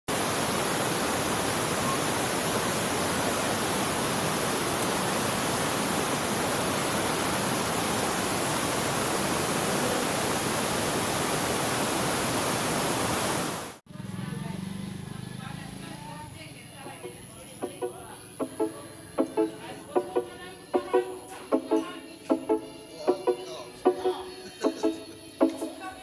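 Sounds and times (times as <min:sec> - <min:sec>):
waterfall rushing: 0:00.1 - 0:13.8.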